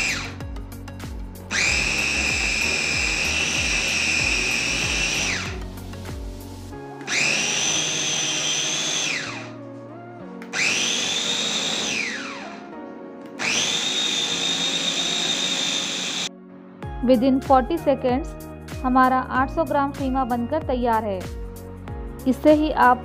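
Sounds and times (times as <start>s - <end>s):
electric chopper motor whine: 0.0s - 0.4s, 1.5s - 5.6s, 7.1s - 9.6s, 10.5s - 12.7s, 13.4s - 16.3s.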